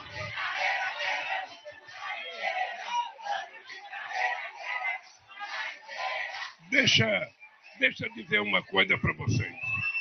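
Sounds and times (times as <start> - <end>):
crowd shouting: 0.0 - 10.0.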